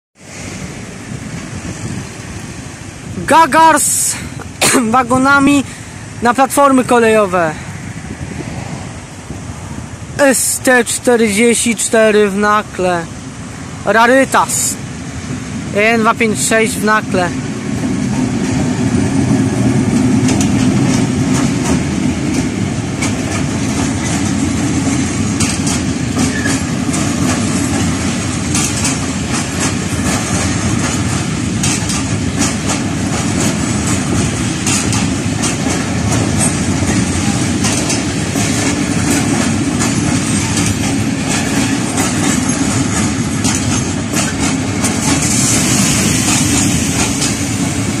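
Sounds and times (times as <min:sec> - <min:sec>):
freight train rumbling past: 0:00.2 - 0:48.0
wheels clicking over track: 0:17.3 - 0:48.0.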